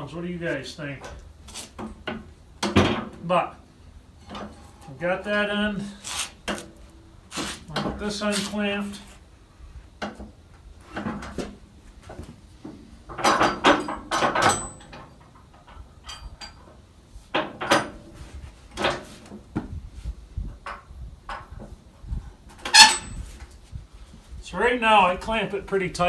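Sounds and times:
metal clamp clanking and rattling: 0:13.1 - 0:16.7, 0:22.7 - 0:23.2.

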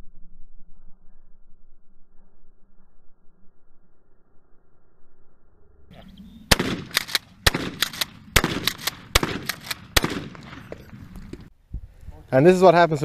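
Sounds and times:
shotgun shots: 0:06.5 - 0:11.5
shotgun pump clacking: 0:06.6 - 0:10.2.

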